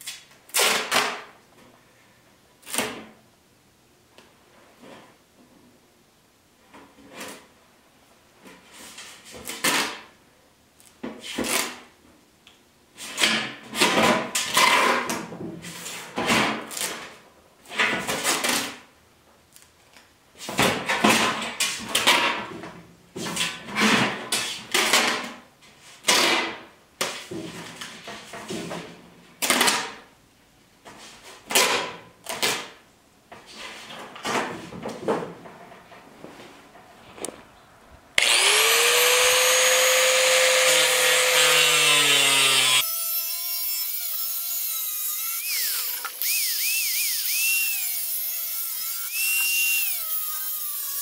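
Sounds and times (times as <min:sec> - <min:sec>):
masking tape tearing off roll: 0:39.0 - 0:51.0.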